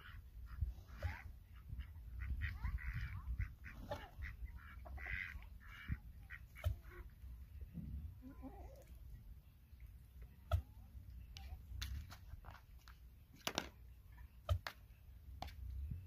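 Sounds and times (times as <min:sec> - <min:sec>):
poultry raspy calls: 0:00.0 - 0:07.1.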